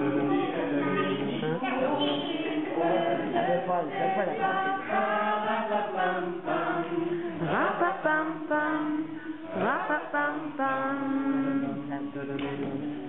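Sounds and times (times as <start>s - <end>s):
group singing held notes: 0.0s - 13.0s.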